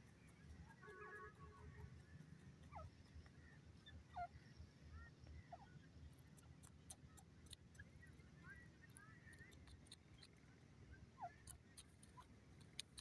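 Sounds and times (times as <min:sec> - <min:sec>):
francolin calls: 0:02.6 - 0:05.9
small ticks: 0:06.0 - 0:08.2, 0:08.8 - 0:10.6, 0:11.2 - 0:13.0.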